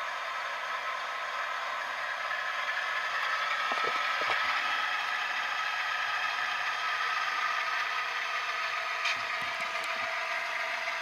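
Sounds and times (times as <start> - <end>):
diesel engine sound from small speaker: 0.0 - 11.0.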